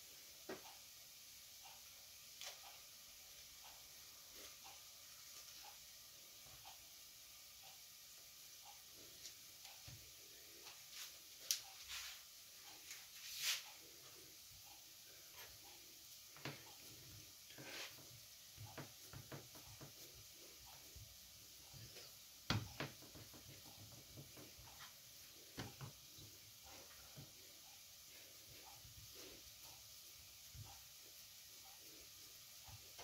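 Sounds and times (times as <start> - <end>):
hands working sausage on board: 17.6 - 20.2, 22.5 - 26.2.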